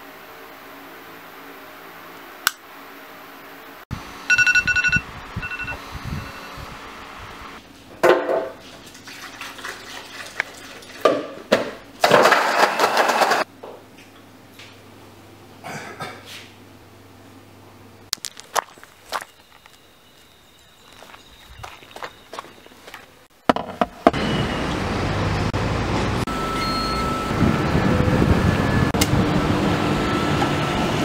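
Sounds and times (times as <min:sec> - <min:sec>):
electronic alarm beeping: 0:04.3 - 0:06.6, 0:26.3 - 0:27.7
liquid splashing and pouring: 0:08.8 - 0:11.2.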